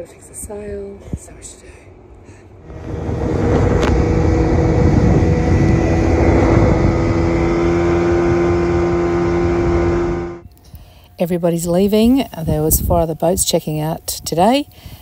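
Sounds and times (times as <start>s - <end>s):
outboard motor running: 2.6s - 10.4s.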